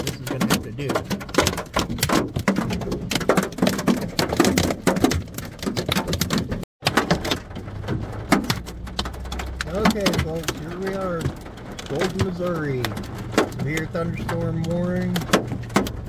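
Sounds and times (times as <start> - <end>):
hailstones pelting a car roof: 0.0 - 16.0.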